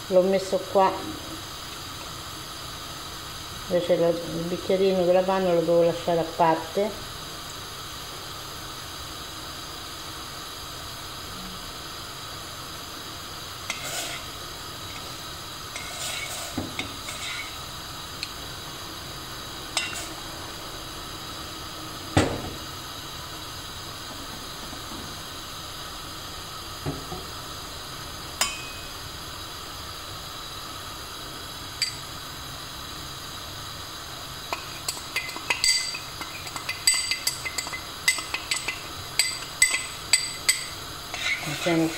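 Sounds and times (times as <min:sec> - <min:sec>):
faint steady hiss: 0:00.0 - 0:41.9
metal spoon clinking in pot: 0:19.8 - 0:20.0, 0:28.4 - 0:28.9, 0:34.5 - 0:41.9.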